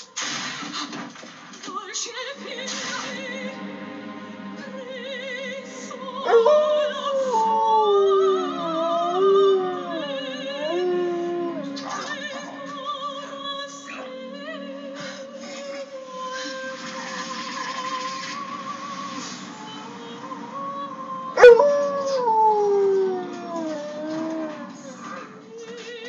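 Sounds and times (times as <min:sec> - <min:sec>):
soprano singing with vibrato: 0:04.6 - 0:17.0
dog howling: 0:06.2 - 0:12.7, 0:21.4 - 0:25.4.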